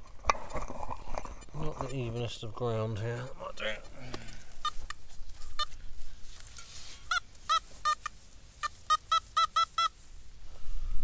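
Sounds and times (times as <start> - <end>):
metal detector beeps: 7.0 - 10.0.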